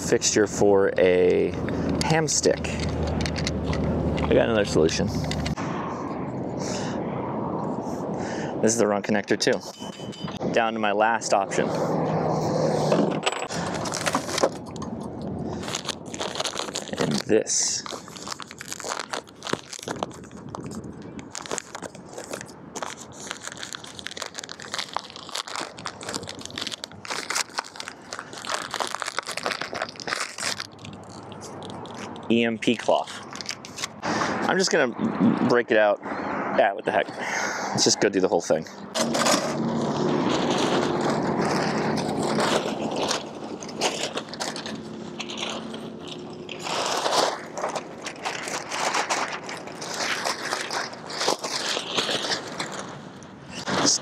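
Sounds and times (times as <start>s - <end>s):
faint hum of passing car: 11.3s - 13.1s
bag crinkling: 13.4s - 14.8s, 15.5s - 34.0s, 39.0s - 53.2s.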